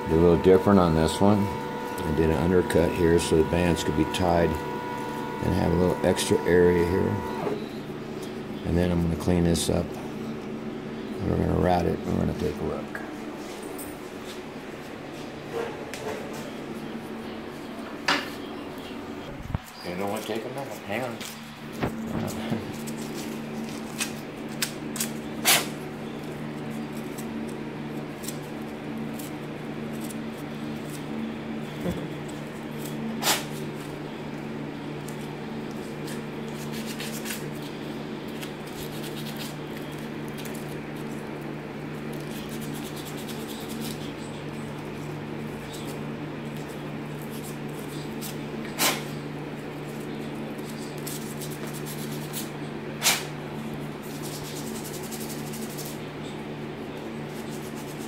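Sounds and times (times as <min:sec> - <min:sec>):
steady low hum: 0:00.0 - 0:58.0
scratchy rubbing and scraping: 0:42.1 - 0:44.1, 0:54.0 - 0:56.0, 0:57.3 - 0:58.0.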